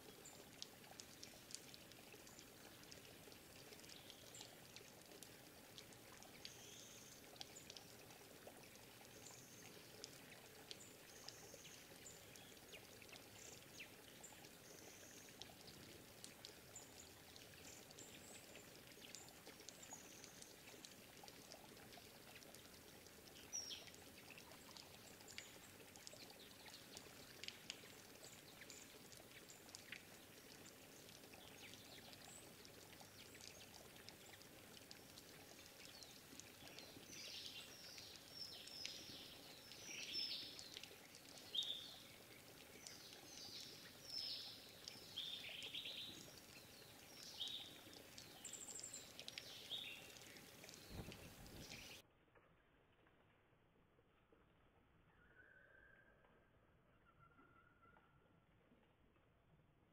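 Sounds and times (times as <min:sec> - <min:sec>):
running water: 0:00.0 - 0:52.0
bird chips and calls: 0:41.4 - 0:52.0.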